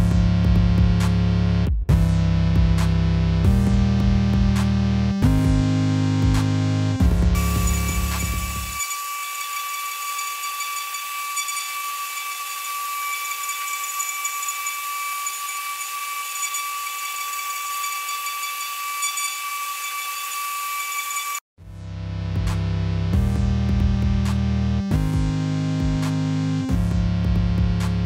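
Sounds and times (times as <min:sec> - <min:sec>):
router spindle high-pitched whine: 0:07.4 - 0:21.4.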